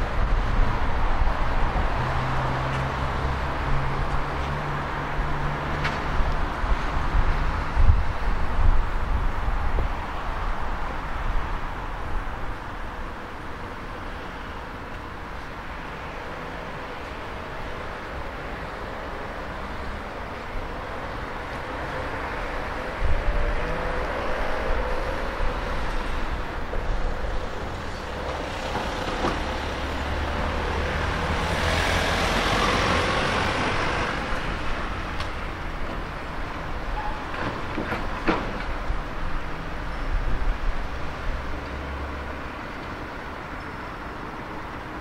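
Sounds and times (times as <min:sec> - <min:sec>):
road noise with low rumble: 0:00.0 - 0:45.0
vehicle passing close by: 0:21.6 - 0:26.5, 0:27.6 - 0:35.1.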